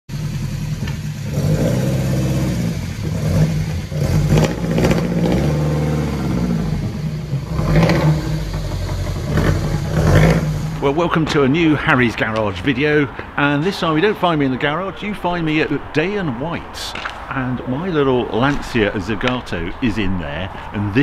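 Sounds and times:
car engine revving: 0.1 - 12.4.

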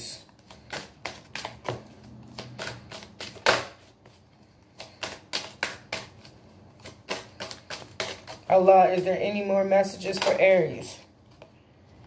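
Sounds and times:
cards shuffled by hand: 0.1 - 9.0.

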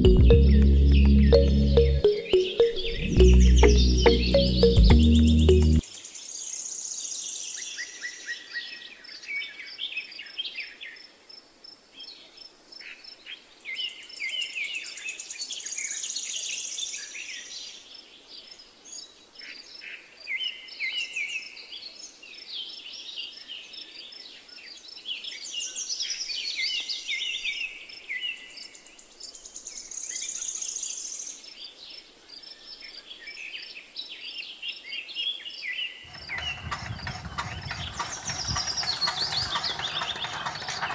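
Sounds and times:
birds chirping and singing: 36.1 - 40.9.

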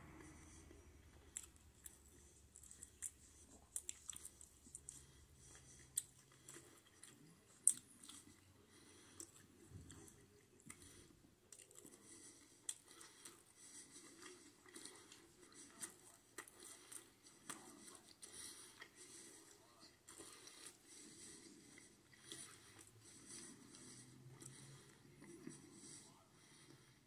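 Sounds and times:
chewing food: 0.0 - 27.0
mouth clicks and smacks: 1.2 - 8.4.

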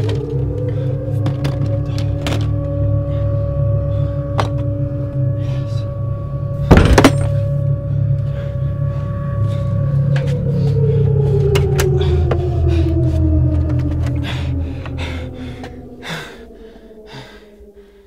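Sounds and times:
low rumbling drone: 0.0 - 18.0
loud sudden hit: 6.7 - 7.4.

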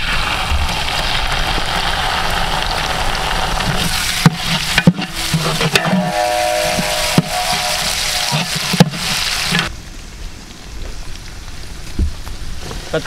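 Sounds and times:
onions sizzling in hot oil: 0.0 - 9.7.

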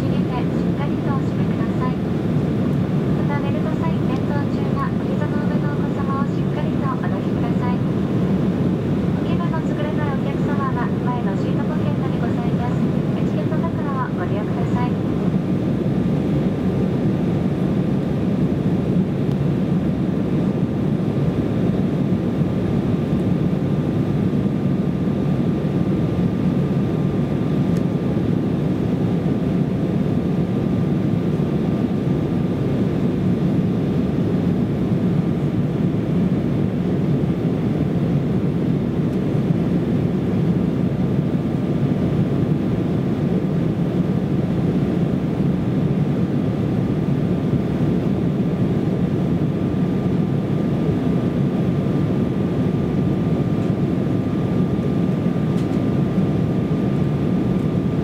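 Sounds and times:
airflow over fuselage: 0.0 - 58.0
airliner cabin engine rumble: 0.0 - 58.0
faint steady whine: 0.0 - 58.0.

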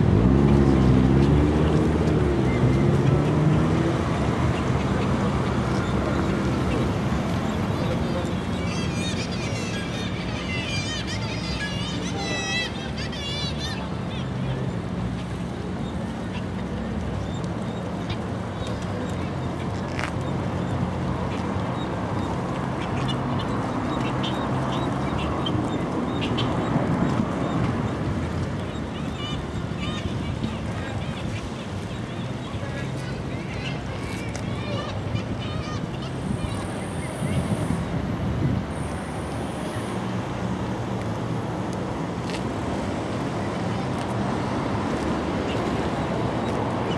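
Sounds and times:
road traffic rumble: 0.0 - 46.9
seagulls calling: 2.4 - 15.4, 16.2 - 37.7.

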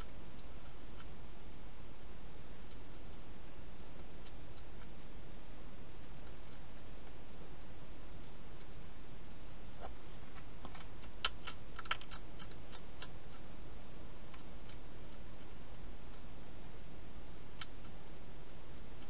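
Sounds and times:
steady hiss: 0.0 - 19.0
hedgehog crunching dry food: 10.3 - 13.4.

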